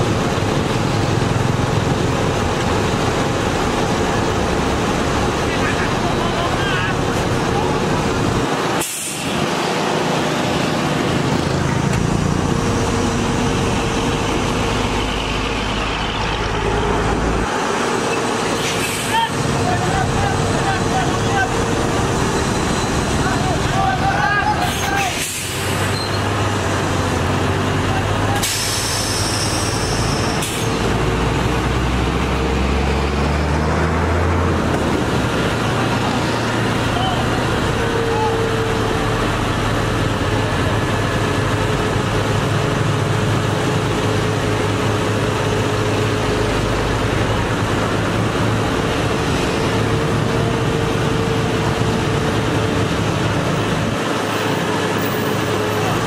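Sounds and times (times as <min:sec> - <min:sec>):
diesel truck engine running: 0:00.0 - 0:56.0
compressed air hiss: 0:08.8 - 0:09.4, 0:25.1 - 0:25.9, 0:28.4 - 0:30.8.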